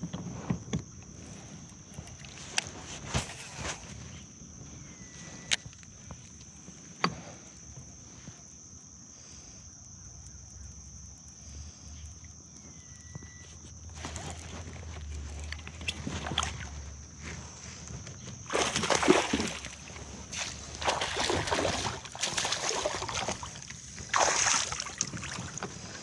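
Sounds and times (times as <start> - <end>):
water sloshing and splashing: 1.1 - 4.2, 13.9 - 26.0.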